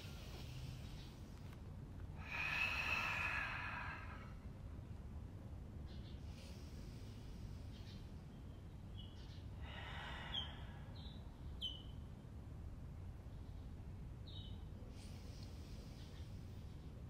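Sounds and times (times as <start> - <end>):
low steady rumble: 0.0 - 17.0
soft breathing hiss: 0.0 - 17.0
high falling bird chirps: 10.3 - 12.0.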